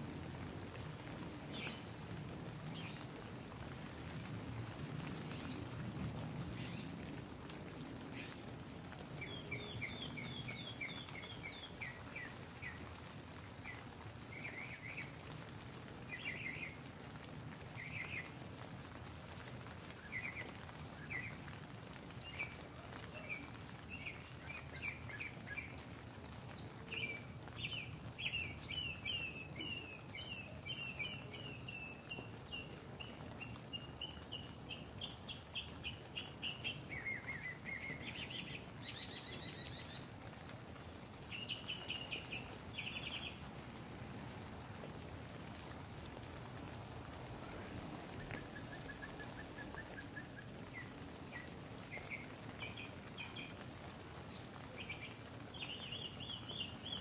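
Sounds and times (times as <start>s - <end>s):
rain on tent fabric: 0.0s - 57.0s.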